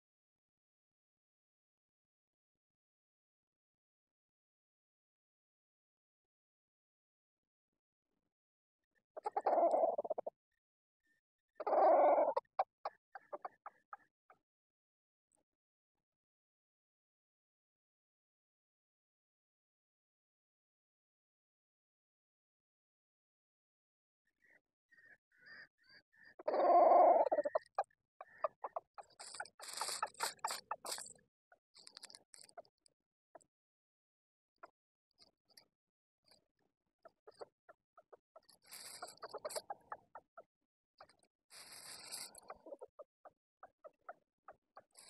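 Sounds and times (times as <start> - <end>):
faint bird chirps: 8.8 - 14.4, 24.2 - 33.5, 37.0 - 40.4, 41.0 - 45.0
junglefowl clucking: 9.2 - 10.3, 11.6 - 14.1, 24.4 - 31.1, 37.0 - 45.0
junglefowl harsh calls: 11.6 - 13.8.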